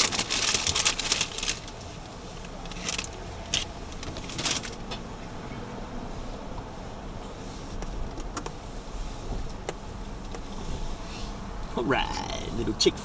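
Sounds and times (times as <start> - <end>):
crinkling rustles: 0.0 - 5.0
low engine rumble: 0.0 - 13.0.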